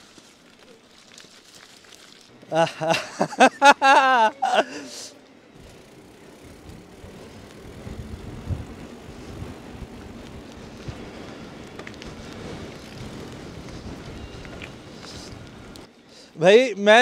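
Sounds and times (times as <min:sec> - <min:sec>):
bicycle clicks: 0:00.0 - 0:02.6, 0:05.2 - 0:15.9
bicycle tyres on wet road: 0:00.0 - 0:16.4
wind on microphone: 0:06.5 - 0:15.8.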